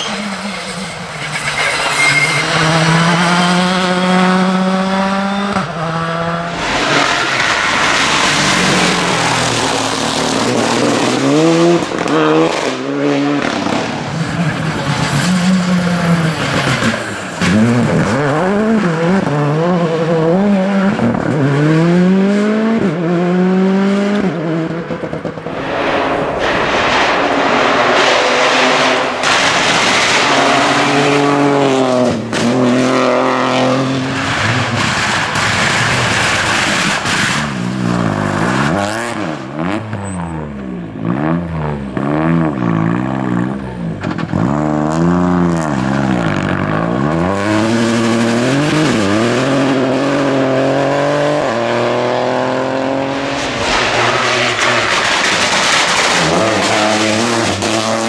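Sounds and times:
rally cars passing at speed: 0.0s - 58.0s
exhaust cracks: 24.1s - 32.9s, 34.0s - 38.8s, 53.3s - 58.0s.

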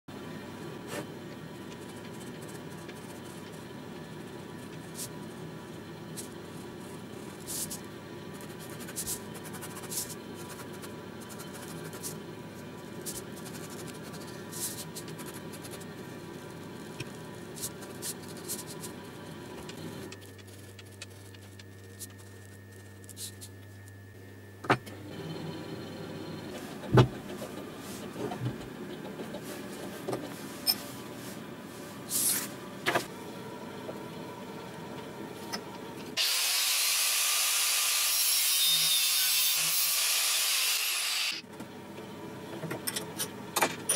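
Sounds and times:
steady background hum: 0.1s - 43.9s
ballpoint pen scratching on paper: 8.4s - 12.2s, 13.0s - 15.9s.

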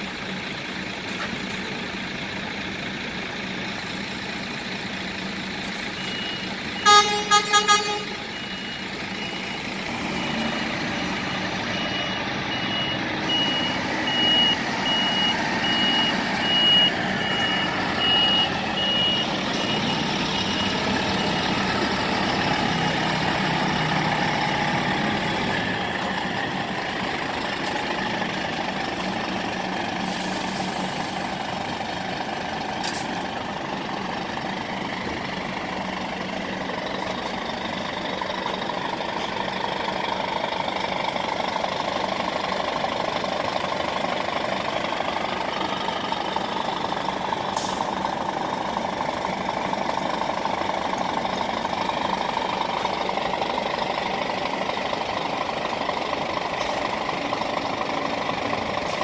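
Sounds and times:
diesel truck engine running: 0.0s - 59.0s
reversing alarm beeping: 5.8s - 27.4s
horn toots: 6.8s - 8.3s.

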